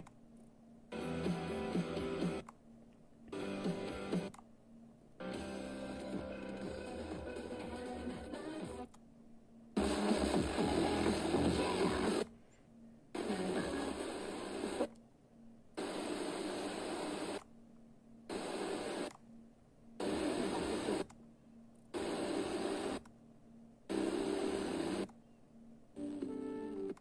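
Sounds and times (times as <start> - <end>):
radio tuner hiss: 9.8 - 12.3, 13.1 - 14.9, 15.8 - 17.4, 18.3 - 19.1, 20.0 - 21.1, 21.9 - 23.0, 23.9 - 25.1.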